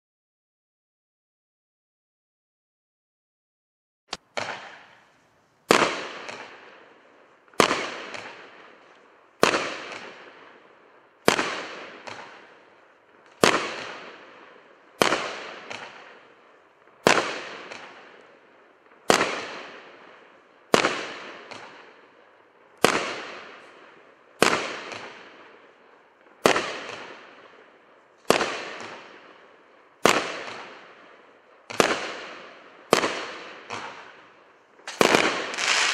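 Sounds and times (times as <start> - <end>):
firework shots banging: 4.1 - 5.1, 5.7 - 6.8, 7.5 - 8.6, 11.2 - 12.5, 15.0 - 16.2, 28.2 - 29.2, 30.0 - 30.9, 31.7 - 34.2, 34.8 - 35.9.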